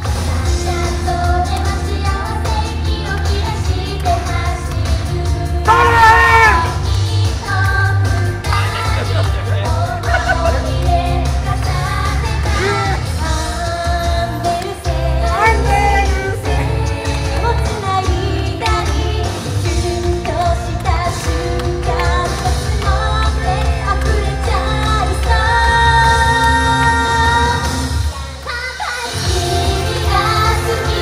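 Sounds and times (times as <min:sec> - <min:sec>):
female group singing: 0:00.4 - 0:31.0
backing track with heavy bass beat: 0:07.9 - 0:13.5.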